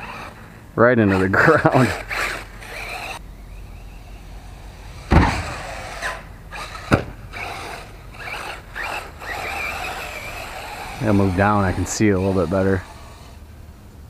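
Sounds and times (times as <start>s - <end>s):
electric motor whine: 0.0s - 13.6s
sharp knocks: 5.1s - 6.2s, 6.8s - 7.2s.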